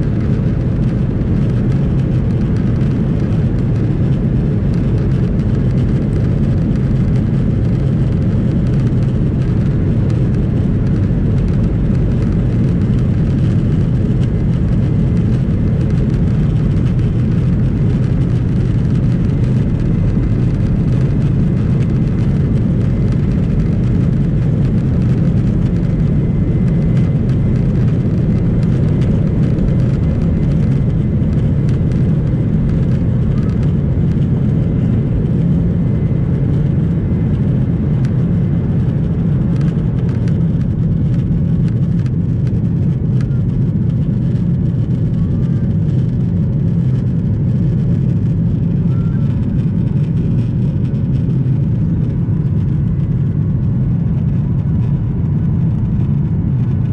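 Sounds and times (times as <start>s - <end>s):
airliner engines low rumble: 0.0s - 56.9s.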